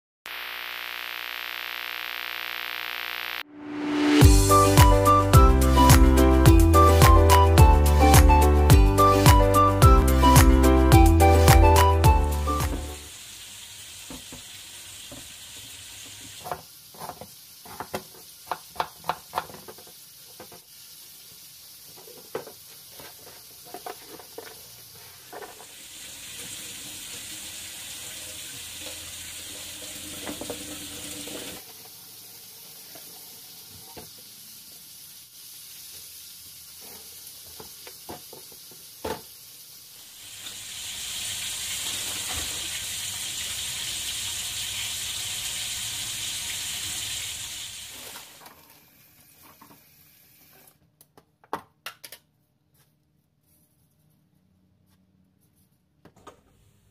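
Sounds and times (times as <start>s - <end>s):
kitchen tap running: 13.0s - 48.9s.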